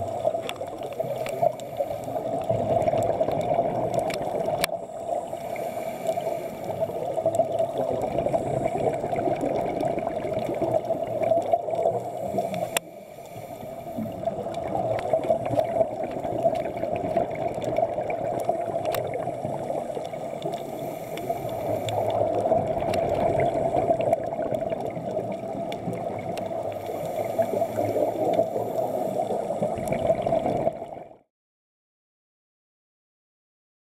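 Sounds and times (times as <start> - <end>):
regulator breathing and bubbles: 0.0 - 31.2.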